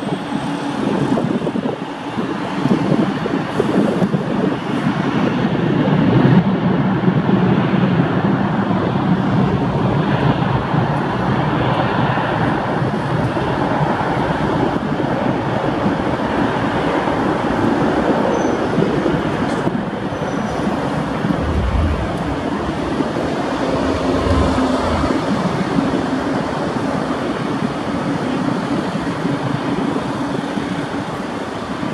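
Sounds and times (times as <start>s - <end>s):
jet engines roaring: 19.9s - 28.8s
low rumbles: 20.5s - 26.6s.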